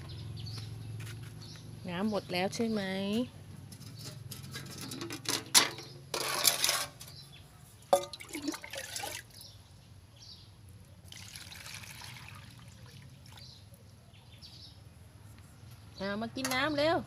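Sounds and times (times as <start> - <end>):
water pouring into plastic bowl: 8.0 - 9.4, 11.1 - 13.4.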